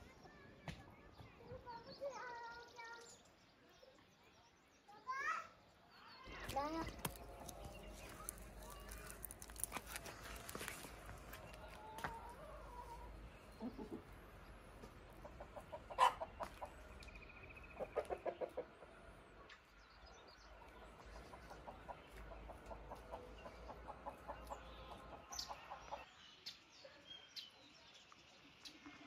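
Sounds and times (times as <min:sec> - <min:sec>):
hens clucking: 0:06.5 - 0:19.4, 0:20.6 - 0:26.0.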